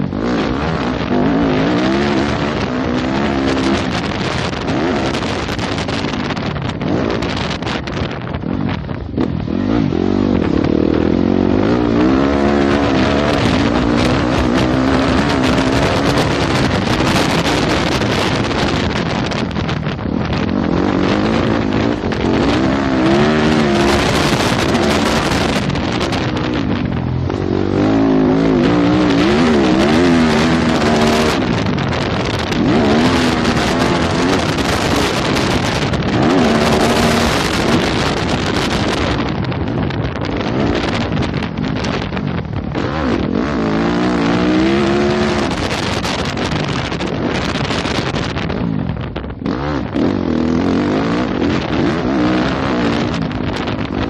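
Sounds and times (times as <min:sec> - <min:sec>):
dirt bike engine revving: 0:00.0 - 0:54.0
wind on microphone: 0:00.0 - 0:54.0.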